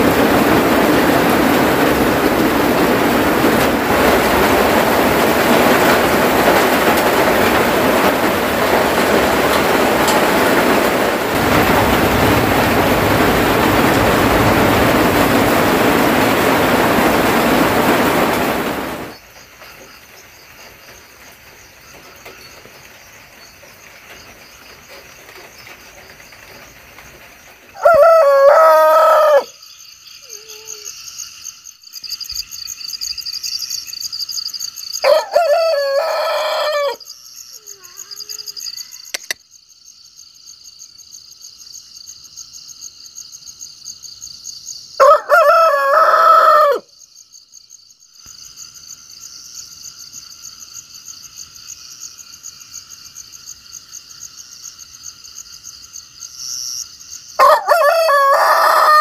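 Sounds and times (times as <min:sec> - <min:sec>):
rooster crowing: 0:27.8 - 0:29.6, 0:35.0 - 0:37.0, 0:45.0 - 0:46.9, 0:57.4 - 0:59.0.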